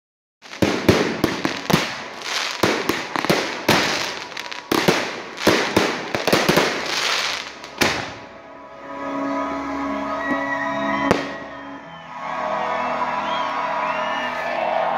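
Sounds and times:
fireworks bursting with loud bangs: 0:00.4 - 0:08.4, 0:11.1 - 0:11.5.

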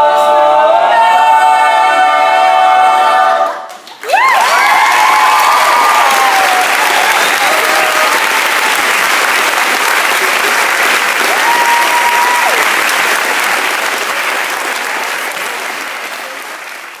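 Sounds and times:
a cappella singing: 0:00.0 - 0:03.7
audience applauding: 0:03.7 - 0:17.0.

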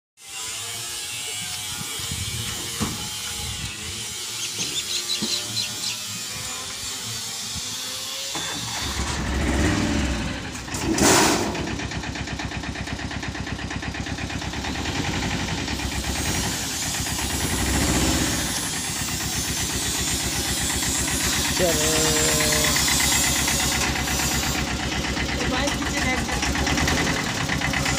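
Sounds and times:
truck engine starting: 0:08.3 - 0:27.9
engine idling: 0:08.4 - 0:27.9.

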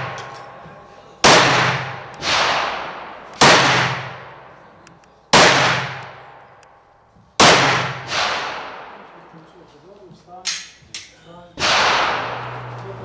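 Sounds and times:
shotgun blasts: 0:00.0 - 0:00.3, 0:01.2 - 0:04.5, 0:05.3 - 0:06.5, 0:07.4 - 0:09.1, 0:11.6 - 0:12.7.

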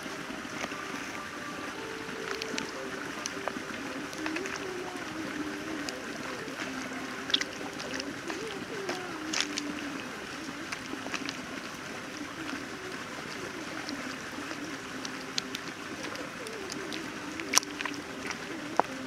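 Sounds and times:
wet squishing of marinade: 0:15.0 - 0:19.0.

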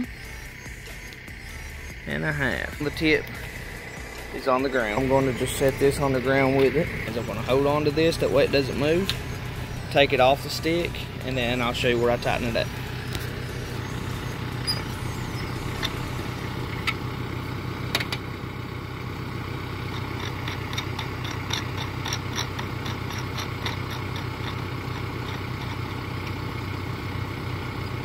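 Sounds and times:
tractor engine idling: 0:00.0 - 0:28.0
sharp clicks: 0:00.8 - 0:01.3.

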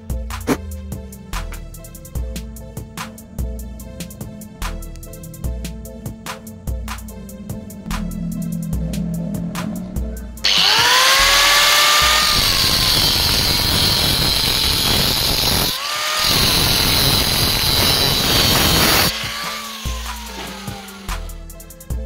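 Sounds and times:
background music with beat: 0:00.0 - 0:12.2, 0:19.1 - 0:22.0
angle grinder cutting steel: 0:10.4 - 0:21.4.

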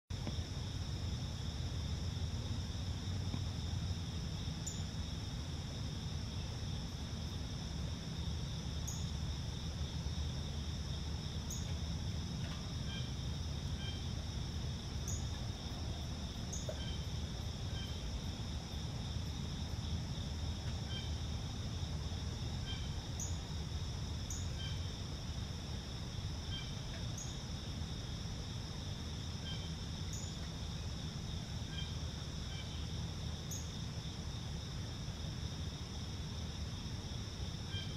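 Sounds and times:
crickets and insects trilling: 0:00.1 - 0:37.9
low steady rumble: 0:00.1 - 0:37.9.

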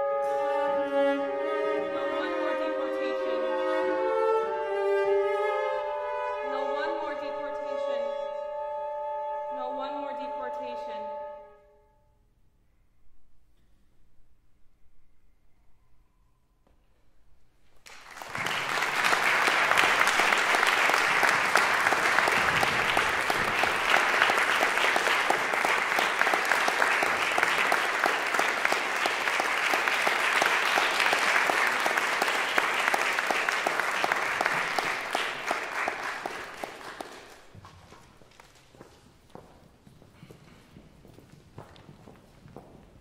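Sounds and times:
audience applauding: 0:17.8 - 0:38.5.

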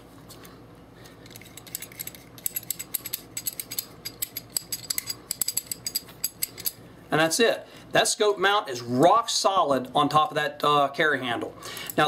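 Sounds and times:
wing nut clicking and ratcheting: 0:01.3 - 0:06.8.

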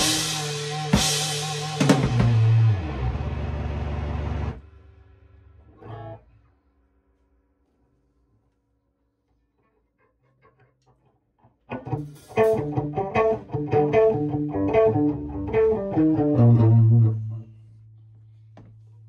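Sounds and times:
heavy metal guitar and bass riff: 0:00.0 - 0:04.6, 0:11.7 - 0:17.4.

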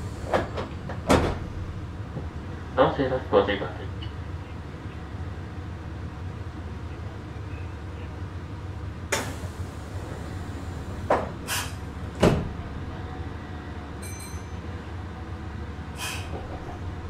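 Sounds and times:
train doors thumping shut: 0:00.0 - 0:01.6, 0:09.1 - 0:12.9, 0:16.0 - 0:17.0
low hum of train car: 0:00.0 - 0:17.0.

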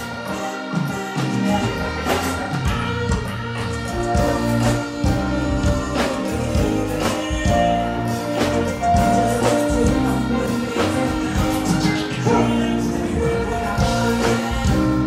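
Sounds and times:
steady drum beat: 0:00.0 - 0:15.0.

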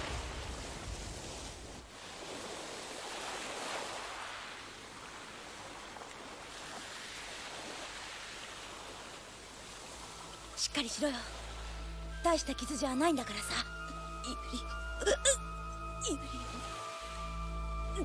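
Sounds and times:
waves washing onto sandy shore: 0:00.0 - 0:10.6.

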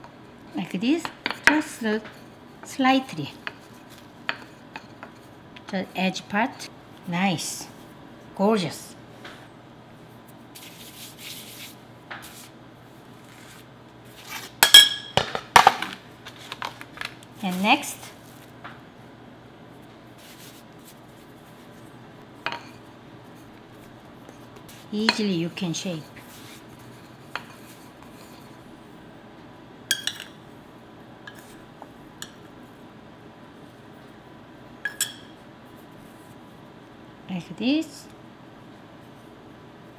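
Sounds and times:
hand rubbing flour on pan: 0:10.2 - 0:12.6, 0:20.2 - 0:21.9, 0:23.2 - 0:28.6
metal spoon clinking on ceramic bowl: 0:14.6 - 0:15.2, 0:29.9 - 0:30.3, 0:34.8 - 0:35.4.

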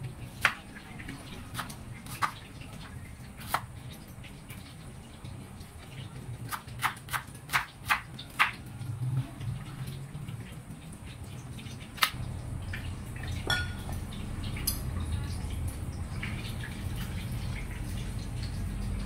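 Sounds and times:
knife slicing onion on cutting board: 0:01.5 - 0:02.4, 0:03.4 - 0:03.7, 0:06.5 - 0:08.6.

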